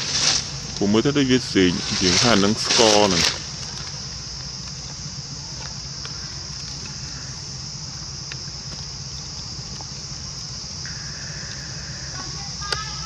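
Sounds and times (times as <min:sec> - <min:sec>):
insects droning: 0:00.0 - 0:13.0
low rumble: 0:10.8 - 0:13.0.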